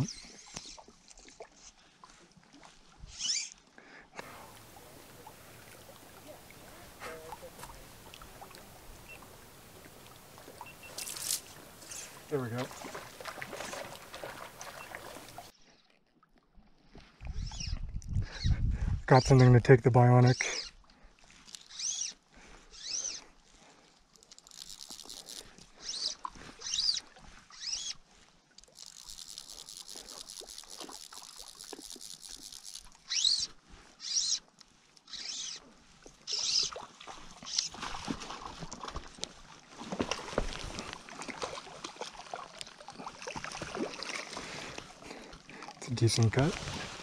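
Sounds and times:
fish splashing: 4.2s - 15.5s, 24.2s - 27.9s, 28.7s - 33.4s, 36.2s - 45.8s
fly reel ratcheting: 21.5s - 22.1s, 24.3s - 27.0s, 28.7s - 34.4s
fly line zipping: 21.6s - 22.1s, 24.4s - 28.0s, 28.7s - 34.4s, 35.1s - 35.6s, 36.3s - 36.7s.

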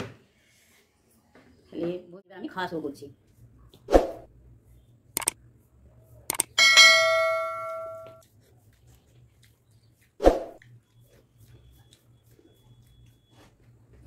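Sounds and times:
button clicks: 6.3s - 6.5s
bell ding: 6.6s - 8.2s.

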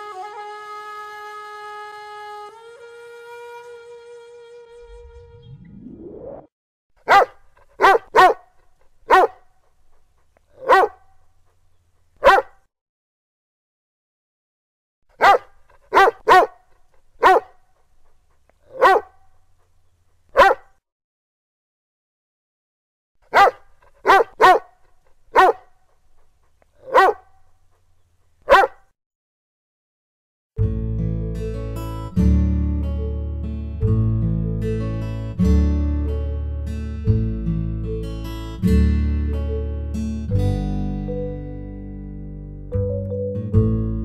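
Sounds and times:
dog barking: 7.0s - 11.6s, 12.2s - 12.7s, 15.2s - 17.9s, 18.6s - 19.3s, 20.3s - 20.8s, 23.2s - 26.0s, 26.8s - 27.8s, 28.4s - 28.9s.

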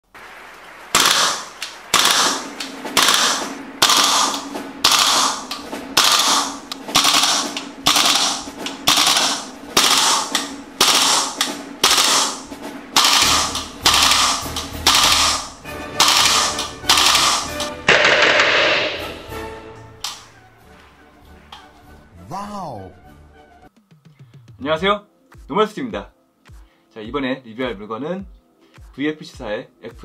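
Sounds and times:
sharp bright cracks: 0.1s - 19.4s, 20.0s - 20.3s.

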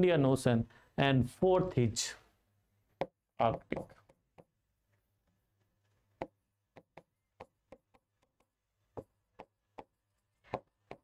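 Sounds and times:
pen tapping on writing board: 3.0s - 4.6s, 6.2s - 11.0s.

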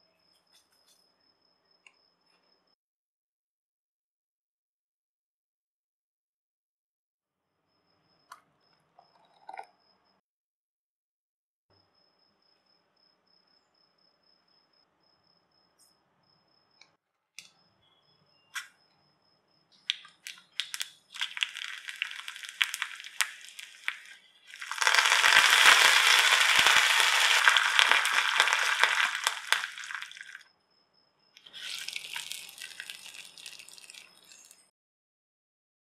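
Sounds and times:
mustard seeds crackling in oil: 19.8s - 30.4s, 31.4s - 34.7s
loud sizzle and spluttering: 20.2s - 30.4s, 31.5s - 34.6s.

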